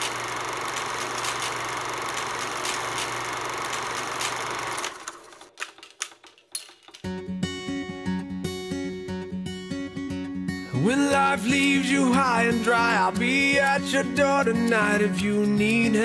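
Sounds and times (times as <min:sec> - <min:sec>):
acoustic guitar music: 0:07.0 - 0:16.0
clicks: 0:11.4 - 0:12.3.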